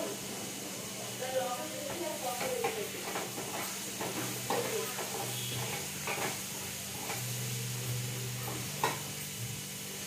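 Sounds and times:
food sizzling in a pan: 0.0s - 10.0s
spoon scraping a pan: 3.2s - 7.4s.

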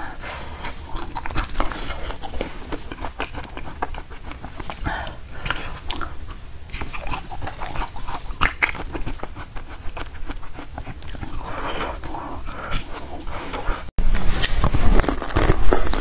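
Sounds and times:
ice balls crunching as chewed: 5.5s - 13.0s, 14.3s - 16.0s.

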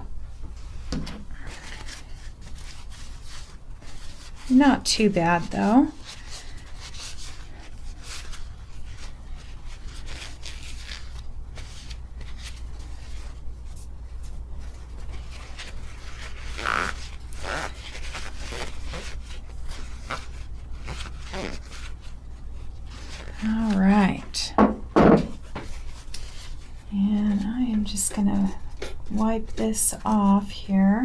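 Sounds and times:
cloth rubbing on metal wheel: 2.2s - 24.5s.

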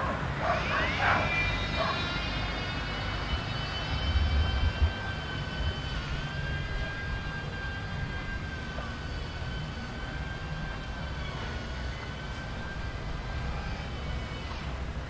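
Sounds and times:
high-pitched mechanical whine: 0.0s - 15.0s
wind gusts on microphone: 3.2s - 8.6s.

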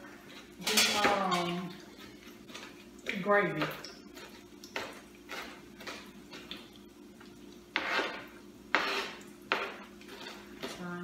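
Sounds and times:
utensils clinking against cookware: 0.4s - 2.2s.

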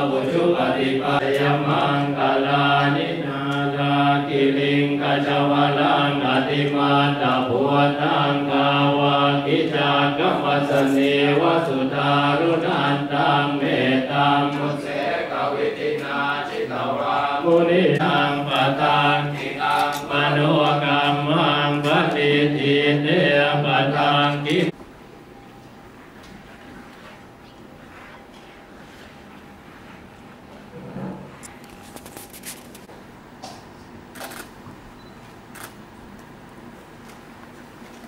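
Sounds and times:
monks chanting in unison: 0.0s - 24.8s.

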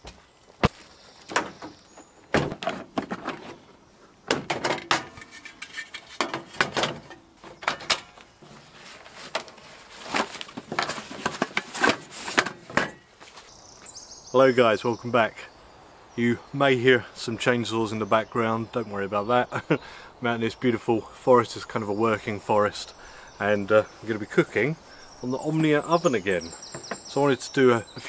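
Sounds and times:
cooking gear clicks and knocks: 4.3s - 13.0s.

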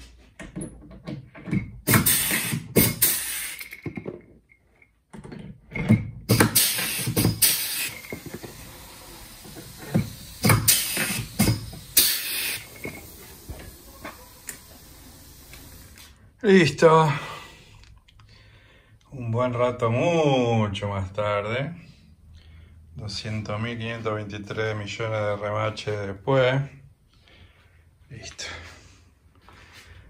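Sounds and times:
rivet gun bursts: 1.9s - 3.8s, 6.3s - 13.8s.

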